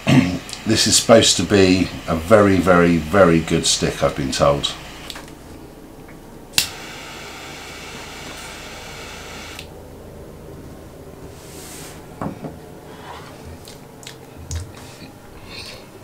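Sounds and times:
torch lighter flame hissing: 0:00.2 - 0:05.2, 0:06.5 - 0:09.7.

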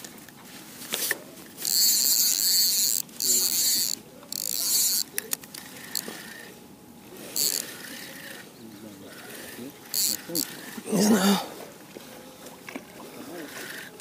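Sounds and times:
fishing reel buzzing: 0:01.6 - 0:06.6, 0:07.2 - 0:10.9, 0:13.3 - 0:14.0.

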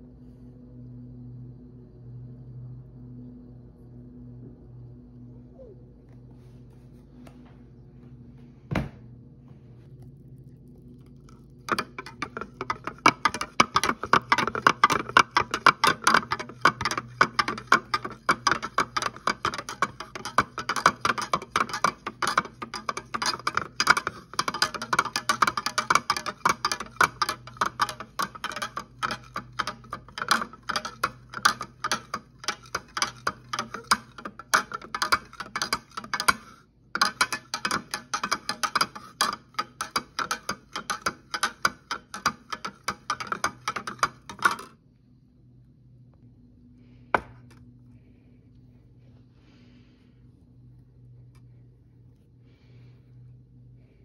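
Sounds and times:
spoon clinking in plastic tumbler: 0:10.4 - 0:44.8.

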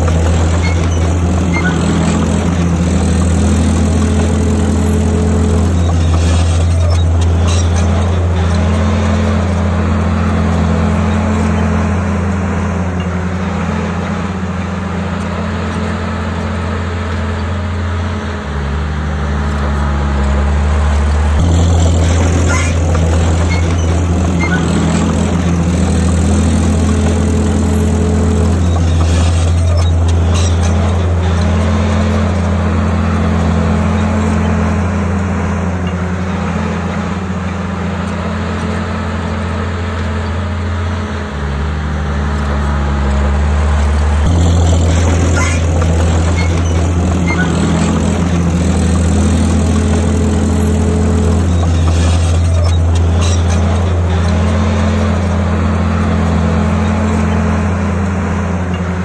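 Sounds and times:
bulldozer diesel engine humming: 0:00.0 - 0:59.0.

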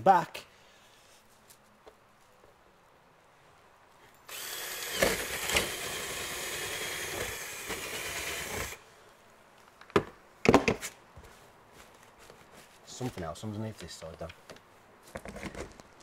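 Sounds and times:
power drill boring: 0:04.3 - 0:08.8.

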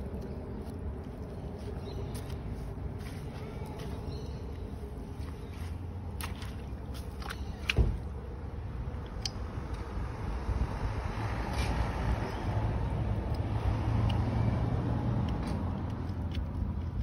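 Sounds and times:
low outdoor rumble: 0:00.0 - 0:17.0
boots on soft wet ground: 0:00.5 - 0:08.2.

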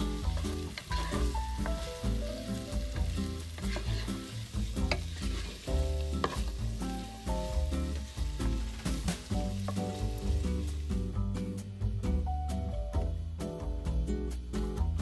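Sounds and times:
vegetables sizzling in oil: 0:00.0 - 0:12.2
music with heavy bass: 0:00.0 - 0:15.0
wooden spatula scraping pan: 0:00.3 - 0:02.2, 0:03.2 - 0:10.7.

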